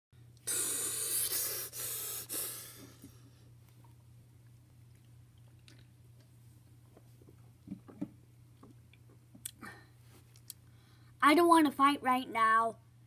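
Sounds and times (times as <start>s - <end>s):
child breathing out hiss: 0.4s - 3.3s.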